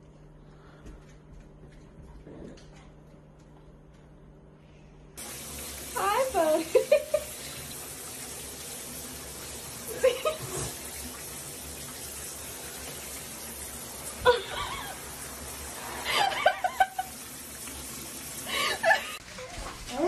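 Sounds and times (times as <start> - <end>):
shower water running into bathtub: 5.2 - 20.0
person laughing: 6.6 - 7.4, 9.9 - 10.7, 14.2 - 15.1, 16.0 - 17.2, 18.5 - 19.2.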